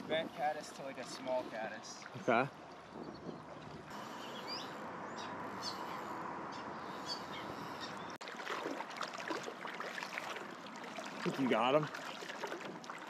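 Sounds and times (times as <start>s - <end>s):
water splashing: 0.0s - 5.0s, 7.6s - 13.0s
river water flowing: 0.0s - 13.0s
bird chirps: 2.9s - 8.2s.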